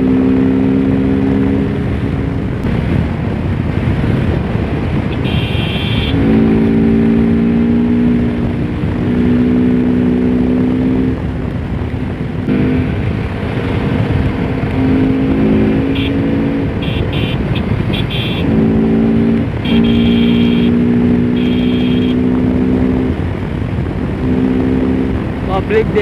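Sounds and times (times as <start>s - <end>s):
motorcycle engine running: 0.0s - 26.0s
road rumble: 0.0s - 26.0s
wind: 0.0s - 26.0s
horn honks: 5.1s - 6.9s, 14.8s - 22.4s.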